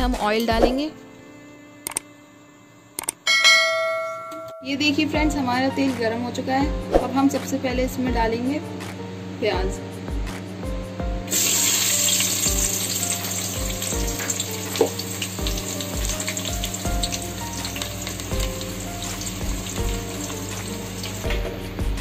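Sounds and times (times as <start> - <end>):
onions sizzling in hot oil: 11.3 - 21.4.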